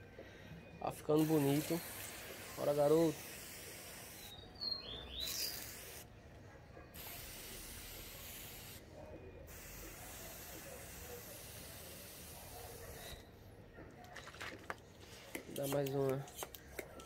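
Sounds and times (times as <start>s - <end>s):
spray bottle hiss: 1.2s - 6.1s, 7.0s - 8.8s, 9.5s - 13.2s
bird chirping: 4.2s - 5.8s.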